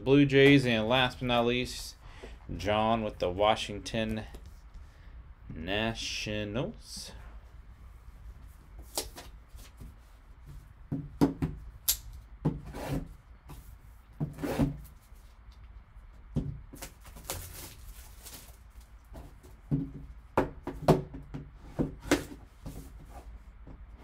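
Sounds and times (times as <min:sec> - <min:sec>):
plastic wrapper crinkling: 0:16.8 - 0:19.0.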